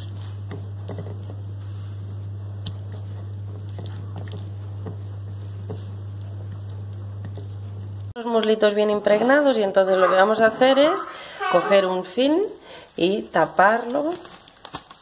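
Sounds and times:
steady low hum: 0.0s - 14.1s
hand squelching raw chicken: 1.8s - 8.1s.

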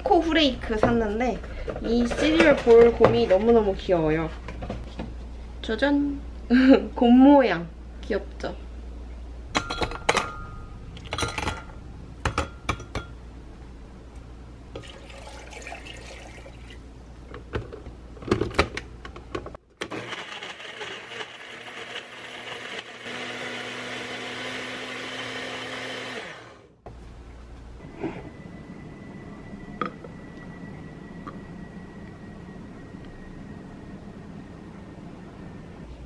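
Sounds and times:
blender motor running: 19.9s - 26.7s.

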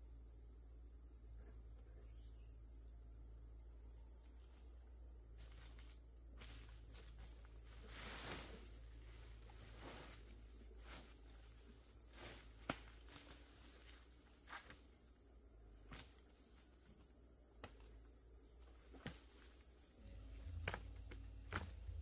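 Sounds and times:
high-pitched insect trill: 0.0s - 22.0s.

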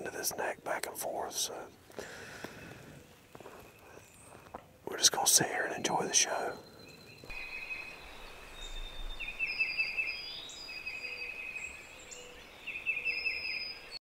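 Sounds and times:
faint outdoor hiss: 0.0s - 14.0s
songbird trills: 0.0s - 14.0s
thin whistled bird notes: 6.0s - 14.0s.

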